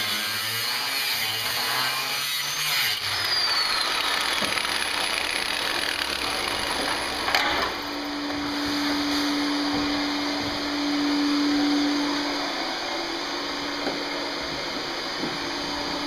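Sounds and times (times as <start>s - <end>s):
angle grinder cutting steel: 0.0s - 8.1s
steady hum: 3.7s - 16.0s.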